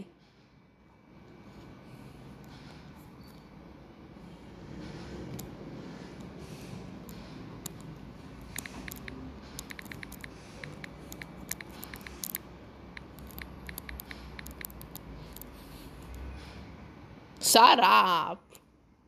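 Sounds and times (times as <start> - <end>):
touchscreen typing taps: 7.1 - 15.5.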